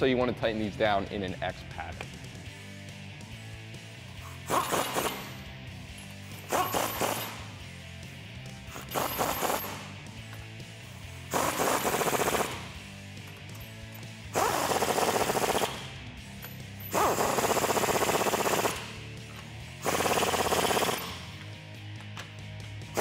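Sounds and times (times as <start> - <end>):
background music: 0.0 - 23.0
impact wrench hammering: 4.4 - 5.4, 6.4 - 7.5, 8.7 - 10.5, 11.3 - 22.4.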